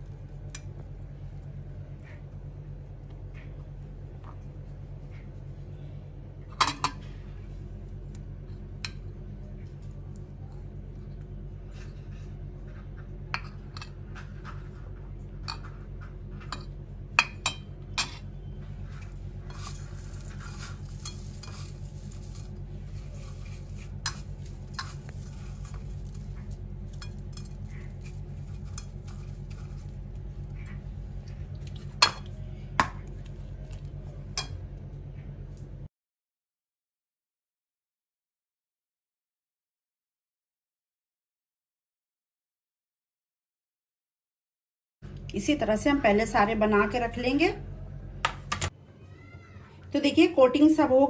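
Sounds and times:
low hum: 0.0s - 35.9s, 45.0s - 49.0s
hands rustling in cornflakes: 19.0s - 30.6s.

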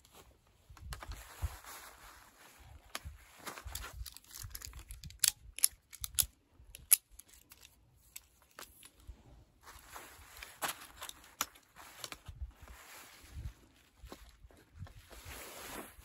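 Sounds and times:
nylon fabric rustling: 0.0s - 4.5s, 9.2s - 16.0s.

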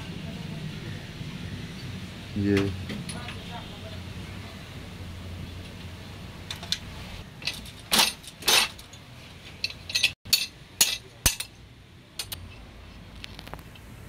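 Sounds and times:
spanner clinking on metal: 7.4s - 9.0s, 9.6s - 11.6s.

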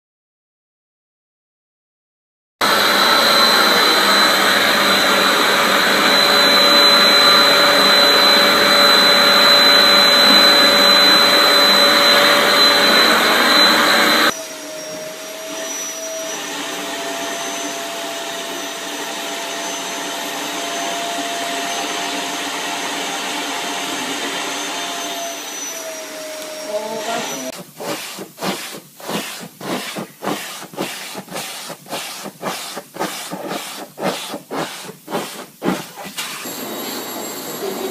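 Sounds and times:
pulsing suction noise: 2.6s - 14.4s
vacuum cleaner high whine: 2.6s - 37.9s
vacuum cleaner low hum: 2.6s - 37.9s.

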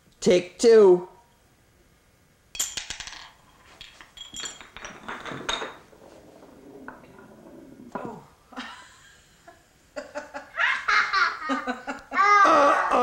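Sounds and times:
poker chip clattering down wooden blocks: 2.6s - 8.0s.

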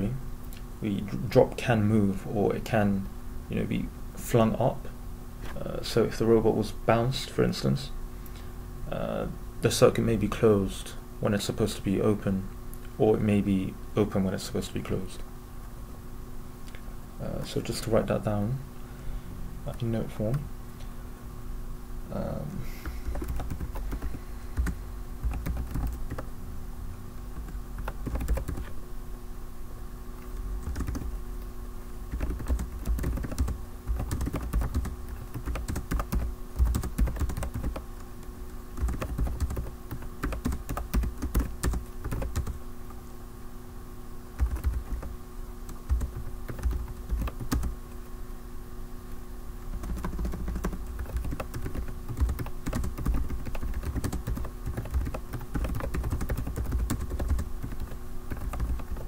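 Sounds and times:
keyboard typing: 22.8s - 26.3s, 27.4s - 28.7s, 30.6s - 31.1s, 32.1s - 37.9s, 38.7s - 42.6s, 44.4s - 45.1s, 45.7s - 48.0s, 49.6s - 59.0s.

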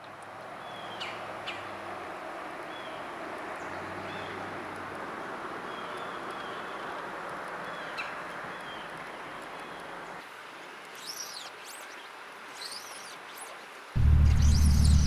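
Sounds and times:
flowing river water: 0.0s - 15.0s
songbird chirping: 14.0s - 15.0s.

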